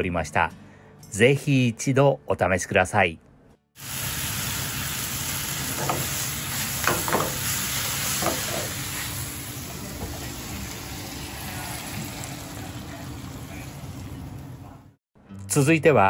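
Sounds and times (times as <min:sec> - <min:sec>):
greens sizzling in frying pan: 0:03.8 - 0:14.4.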